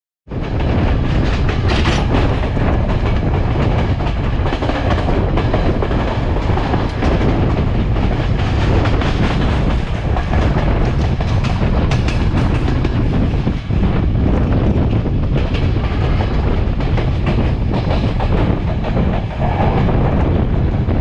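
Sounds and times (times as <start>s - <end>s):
train wheels rumbling on rails: 0.3s - 21.0s
wheels clicking over rail joints: 0.4s - 13.8s.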